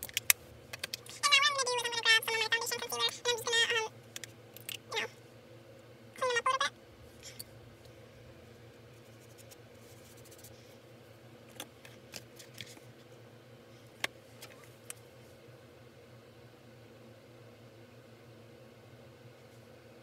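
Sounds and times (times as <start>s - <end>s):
small clicks of makeup cases: 0.0s - 1.0s
faint steady hum: 0.0s - 20.0s.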